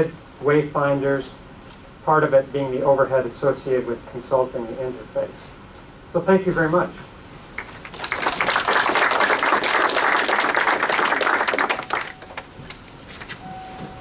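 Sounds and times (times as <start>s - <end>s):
audience applauding: 7.6s - 12.5s.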